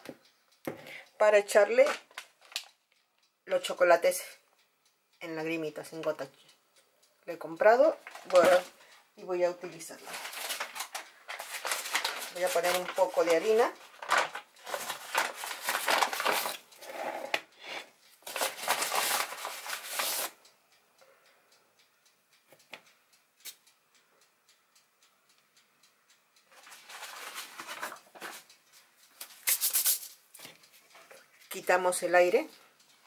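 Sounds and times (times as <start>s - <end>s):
flour brushed on countertop: 29.4s - 30.1s.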